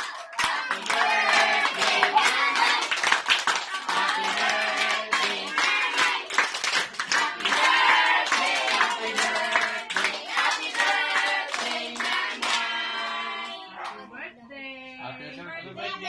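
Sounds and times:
hand claps: 0.0 - 12.7
group singing birthday song: 0.0 - 14.2.

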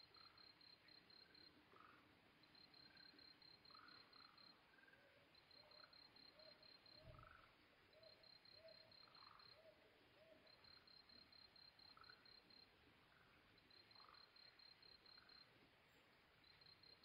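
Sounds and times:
cricket chirping: 0.0 - 17.0
owl hooting softly: 3.7 - 10.8
frog calls: 11.6 - 12.4.

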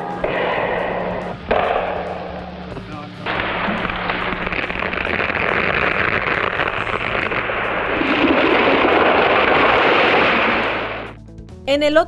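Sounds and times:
tree crashing down: 3.2 - 11.2.

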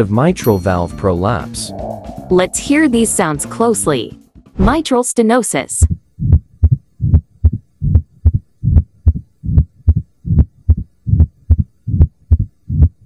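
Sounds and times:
heartbeat low thumps: 5.8 - 13.0.

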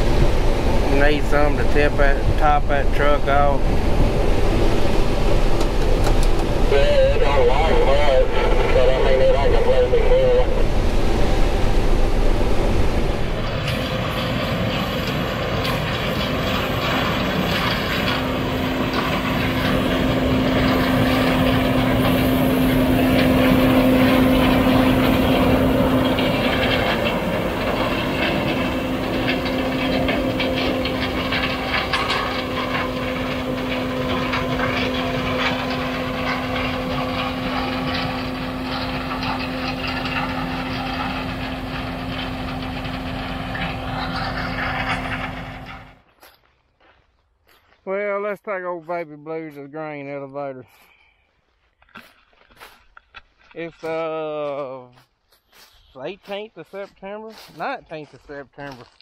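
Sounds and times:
combine harvester engine hum: 0.0 - 46.4.

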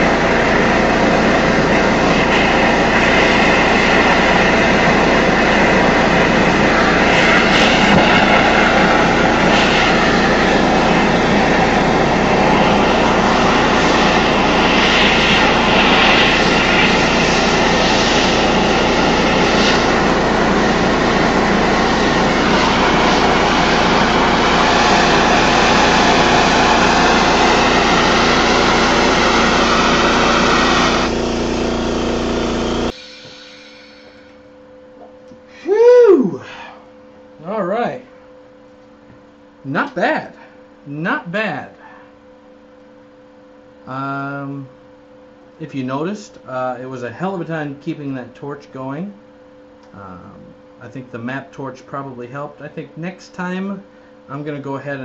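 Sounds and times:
torch burning with a roar: 0.0 - 33.0.

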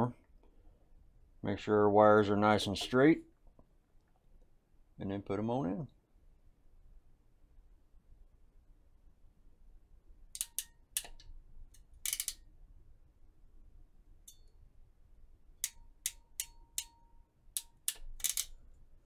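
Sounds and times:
ratcheting wire crimper clicking: 10.3 - 12.5, 15.6 - 18.7.

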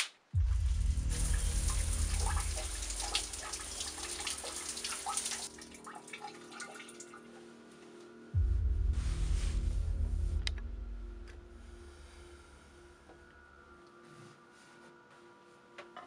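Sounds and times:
deep low drone: 0.4 - 4.8, 8.3 - 14.5
water dripping: 0.6 - 7.3
shower water spraying onto tiles: 1.0 - 5.7.

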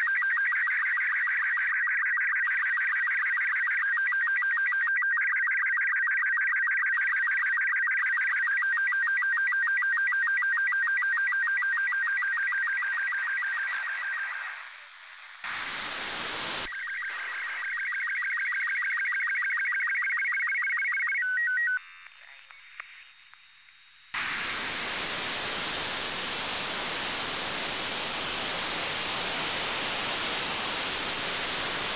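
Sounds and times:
warbling radio beeping tones: 0.0 - 14.9, 15.5 - 23.2, 24.2 - 31.9
radio static: 13.3 - 18.6, 21.4 - 31.9.

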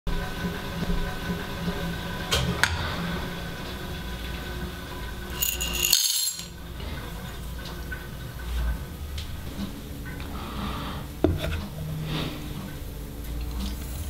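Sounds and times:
coffee beans pouring into metal cup: 5.2 - 6.6.

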